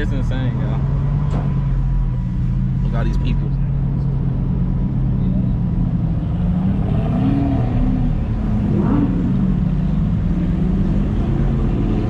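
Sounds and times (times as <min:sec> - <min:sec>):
car engine running: 0:00.0 - 0:06.8.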